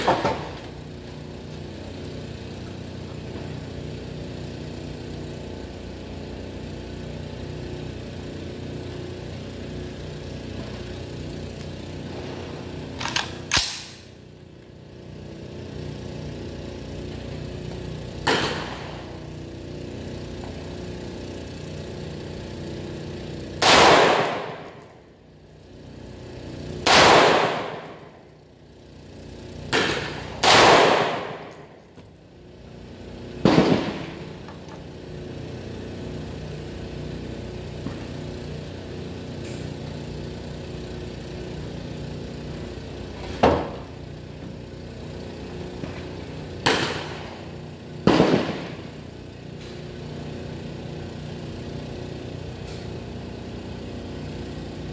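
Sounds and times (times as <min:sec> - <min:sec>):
steady low hum: 0:00.0 - 0:54.9
rifle shots with echo: 0:23.6 - 0:24.7, 0:26.9 - 0:27.9, 0:29.7 - 0:31.5, 0:33.4 - 0:34.2, 0:48.0 - 0:48.8.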